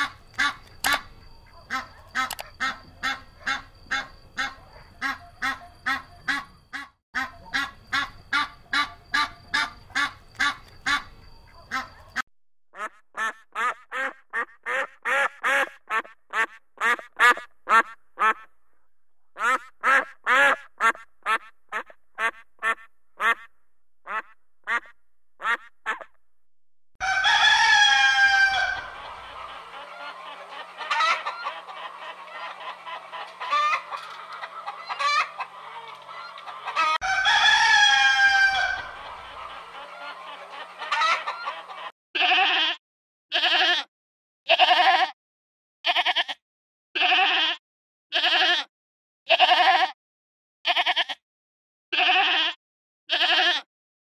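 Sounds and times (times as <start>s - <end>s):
duck quacking: 0.0s - 12.2s, 12.8s - 18.5s, 19.4s - 26.2s, 27.8s - 37.0s, 37.7s - 42.4s
hens clucking: 0.0s - 12.2s, 27.1s - 41.9s
rooster crowing: 27.0s - 30.2s, 34.7s - 40.2s
goat bleating: 42.2s - 43.9s, 44.5s - 45.2s, 45.9s - 46.4s, 47.0s - 48.7s, 49.3s - 50.0s, 50.7s - 51.2s, 52.0s - 53.7s.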